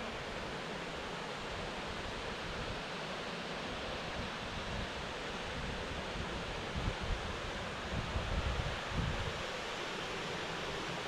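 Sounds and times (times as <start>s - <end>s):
wind rumble on microphone: 4.0s - 9.6s.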